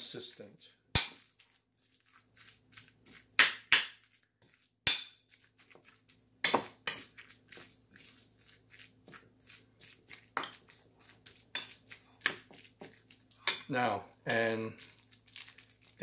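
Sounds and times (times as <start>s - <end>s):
fork scraping ceramic bowl: 6.5s - 13.7s.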